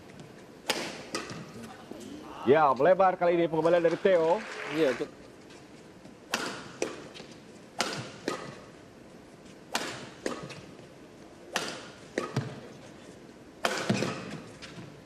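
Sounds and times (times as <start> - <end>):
badminton racket hitting shuttlecock: 0.6 - 1.7, 6.3 - 8.7, 9.7 - 10.7, 11.5 - 12.6, 13.6 - 14.8.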